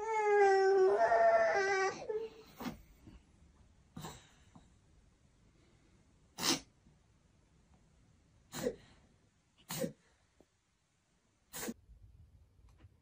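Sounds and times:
person sneezing: 6.4 - 6.7, 9.6 - 10.0, 11.5 - 11.8.

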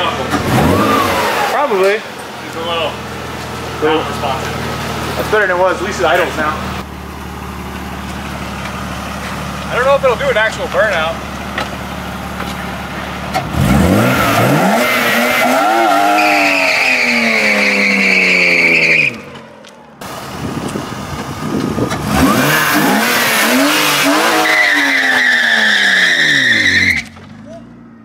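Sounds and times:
car engine revving hard: 0.0 - 2.2, 13.3 - 19.3, 21.4 - 27.0
tires squealing: 0.0 - 6.8, 8.0 - 19.8, 20.4 - 28.0.

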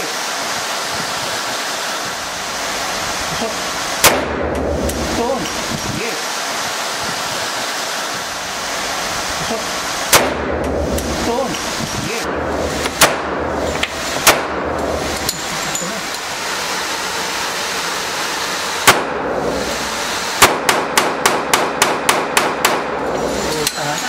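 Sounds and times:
pistol shots indoors: 4.0 - 5.0, 10.1 - 11.1, 12.3 - 13.6, 14.2 - 15.0, 18.8 - 19.4, 20.4 - 23.0.

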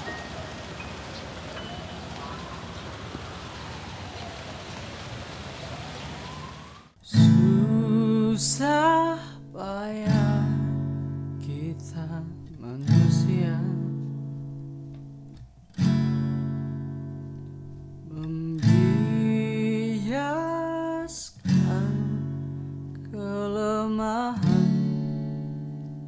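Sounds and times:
acoustic guitar strumming: 7.0 - 20.3, 21.4 - 26.0.

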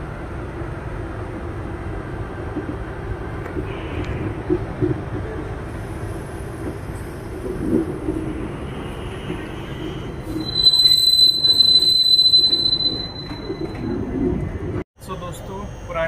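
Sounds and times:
train rumbling over rails: 0.0 - 16.0
steel wheels squealing on rail: 8.3 - 14.4.

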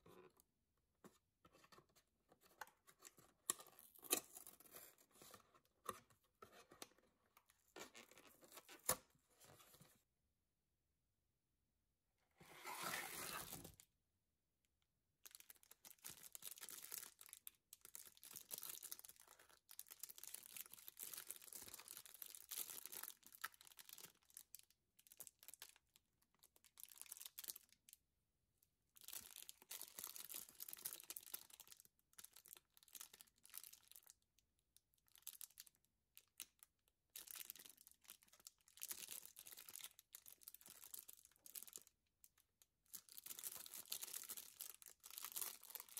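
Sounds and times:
plastic wrapper crinkling: 15.2 - 27.8, 37.2 - 45.9.

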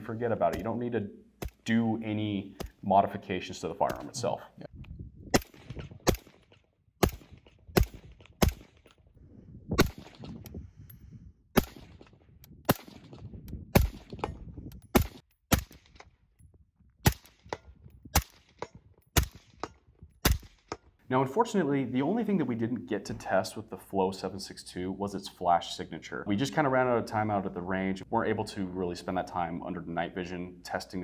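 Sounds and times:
suppressed rifle shots with echo: 5.3 - 8.9, 9.8 - 10.4, 11.6 - 14.3, 18.2 - 20.7.

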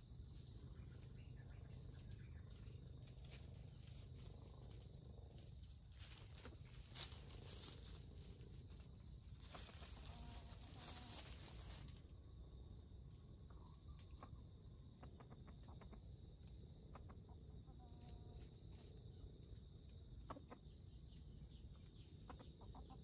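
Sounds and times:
rustling of dry leaves: 0.3 - 12.6.

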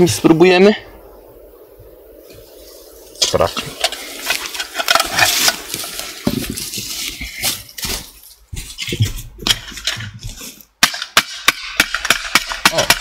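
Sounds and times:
footsteps on dry leaves: 4.0 - 9.4.

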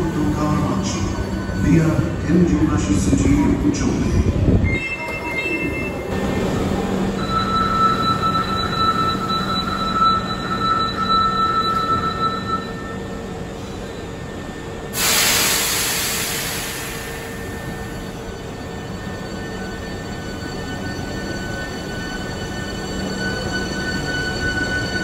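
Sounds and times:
compressed air hiss: 15.0 - 17.1.

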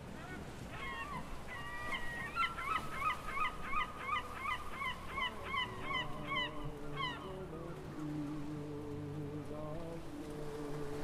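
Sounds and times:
gull yelping calls: 0.2 - 7.2.

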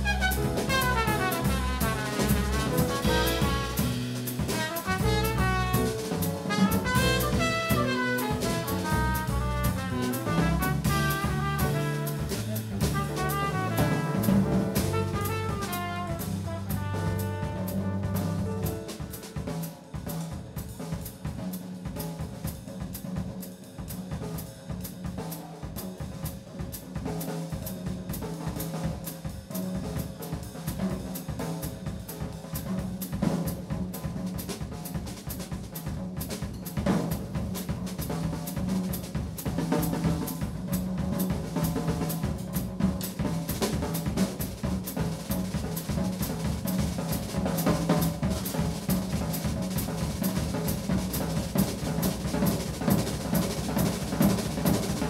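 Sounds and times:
held bass and piano notes: 0.0 - 19.5
drum kit solo: 0.0 - 55.0.

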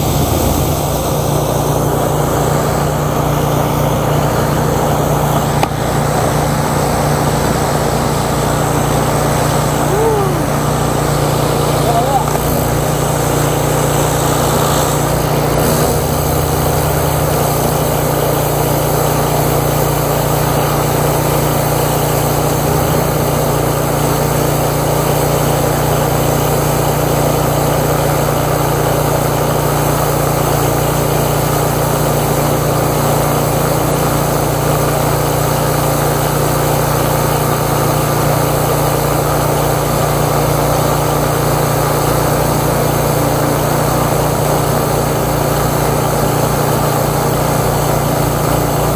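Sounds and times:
water jet spray hissing: 0.0 - 3.2, 4.1 - 48.9
pressure washer engine running: 0.0 - 48.9.

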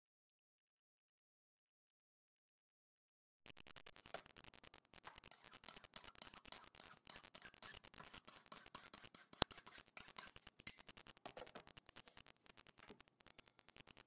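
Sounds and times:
knife scraping on ceramic: 5.2 - 12.2.

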